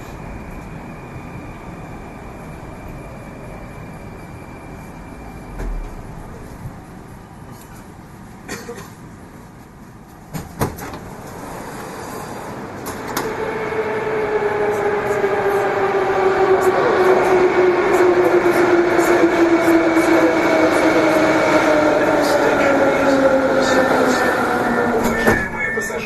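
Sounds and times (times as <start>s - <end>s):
traction drive whine: 0.0s - 7.2s
train running noise: 0.0s - 26.0s.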